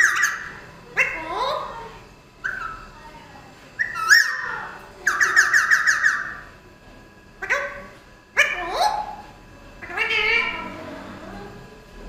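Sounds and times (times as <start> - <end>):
parakeet rapid chattering: 0.0 - 3.0, 3.8 - 6.6, 7.3 - 10.9
parakeets calling: 0.0 - 3.1, 3.8 - 6.6, 7.3 - 11.1.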